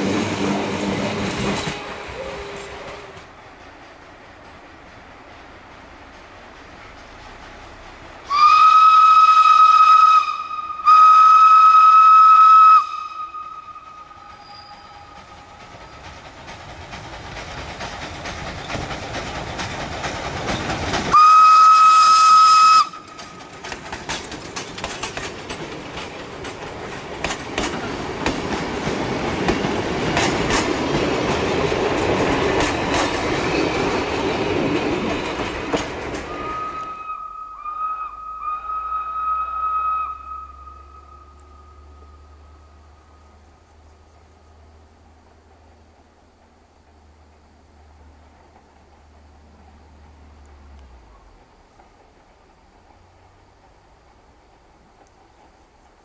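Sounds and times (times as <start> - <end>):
train wheels clicking over rail joints: 0.0 - 10.7, 13.0 - 37.1, 40.6 - 56.0
steam locomotive whistle: 1.5 - 3.2, 8.2 - 15.4, 21.1 - 23.1, 36.3 - 42.8.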